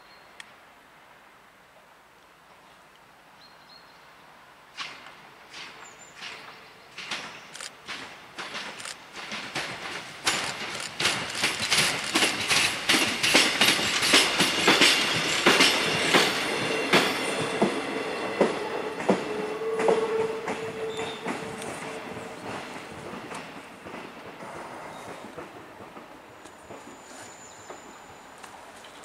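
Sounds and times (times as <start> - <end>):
train wheels clicking on rail joints: 4.7 - 29.0
train squeal: 10.3 - 22.9, 24.4 - 25.4, 26.2 - 29.0.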